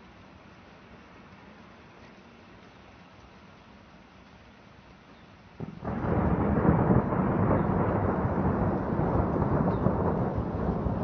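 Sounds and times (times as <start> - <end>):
thunder crack and rumble: 5.6 - 11.0.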